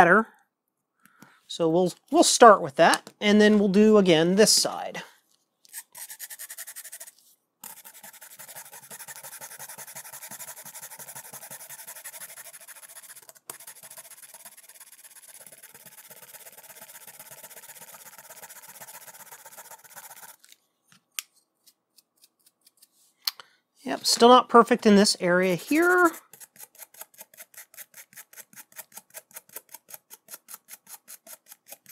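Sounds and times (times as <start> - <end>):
pen scraping metal contacts: 25.6 - 31.9.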